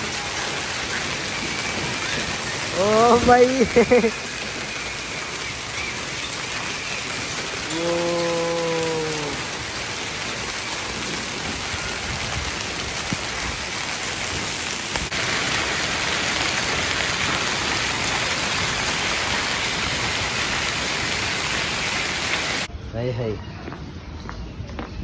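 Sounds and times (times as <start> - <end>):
hail and rain pelting ground: 0.0 - 22.7.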